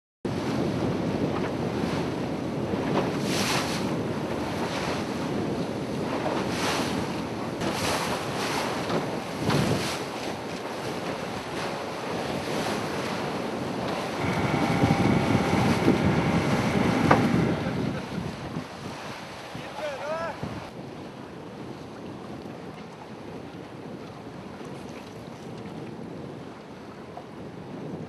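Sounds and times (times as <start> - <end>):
choppy sea splashing: 0.3 - 28.0
wind buffeting microphone: 0.3 - 28.0
steady motor hum: 13.4 - 18.8.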